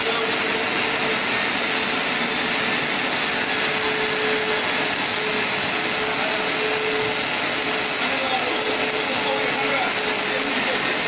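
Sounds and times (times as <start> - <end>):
welding arcs hissing and crackling: 0.0 - 11.0.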